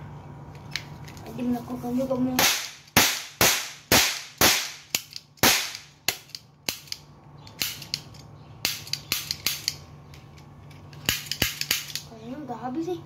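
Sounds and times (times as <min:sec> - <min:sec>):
cap gun pops: 0:02.4 - 0:06.9.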